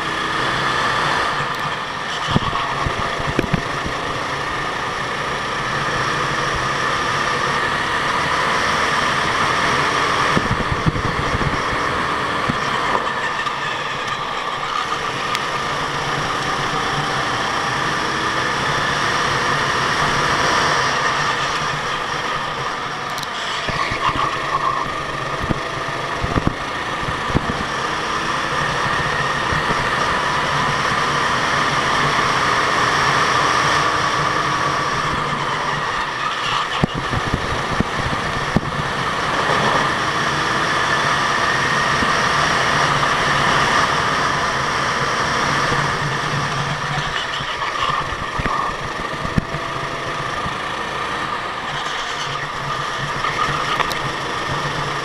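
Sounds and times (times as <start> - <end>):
go-kart engine running: 0.0 - 55.0.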